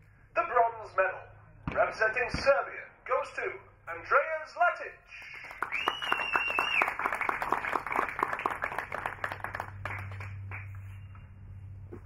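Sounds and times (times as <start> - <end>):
audience applauding: 5.2 - 10.8
high whistle: 5.6 - 7.0.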